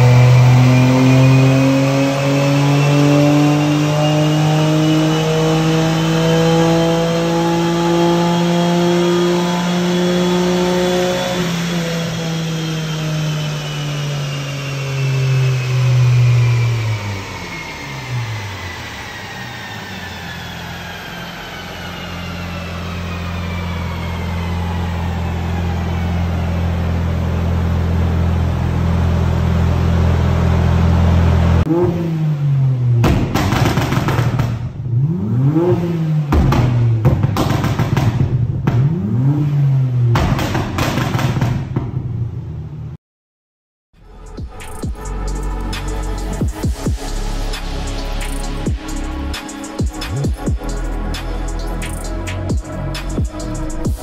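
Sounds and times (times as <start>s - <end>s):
turbo whine: 0.0s - 31.7s, 44.0s - 54.0s
car engine revving on dyno: 0.0s - 42.5s, 44.0s - 54.0s.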